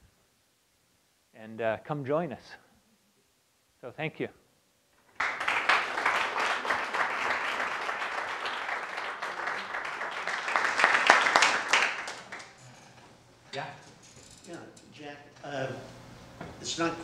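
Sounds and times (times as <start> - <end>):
audience applauding: 5.0 - 13.1.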